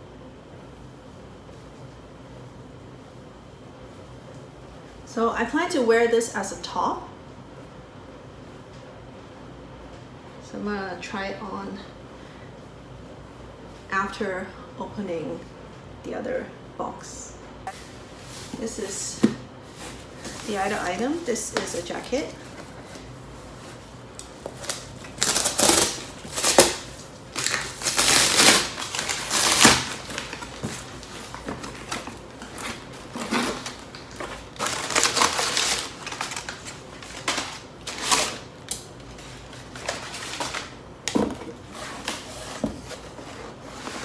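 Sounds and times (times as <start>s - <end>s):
packing paper crinkling: 19.7s - 40.8s.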